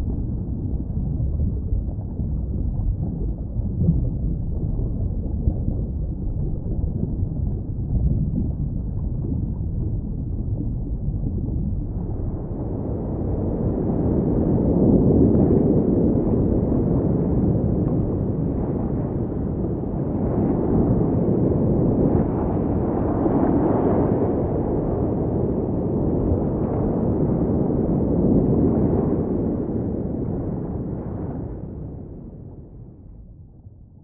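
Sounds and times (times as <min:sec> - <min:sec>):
underwater rumble of moving water: 0:00.0 - 0:34.0.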